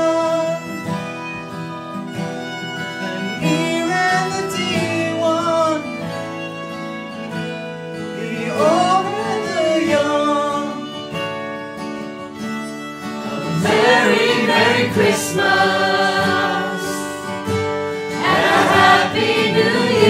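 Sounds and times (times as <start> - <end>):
man singing: 0.0 - 0.7, 3.4 - 6.0, 8.0 - 11.0, 13.2 - 17.2
acoustic guitars: 0.0 - 20.0
violin: 0.0 - 20.0
group of voices singing: 13.3 - 17.3, 18.1 - 20.0.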